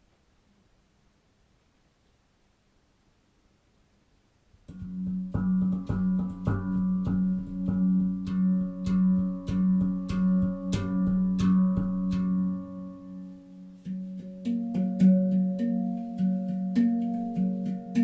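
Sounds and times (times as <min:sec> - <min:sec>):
handpan notes ringing: 0:04.7 - 0:18.0.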